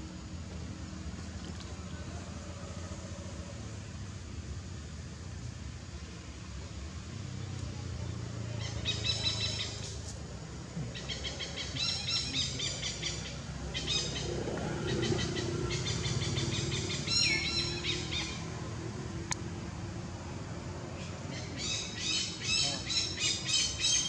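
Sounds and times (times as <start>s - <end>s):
low steady hum: 0.0s - 24.0s
birds chirping: 8.1s - 10.0s, 10.8s - 18.7s, 20.9s - 24.0s.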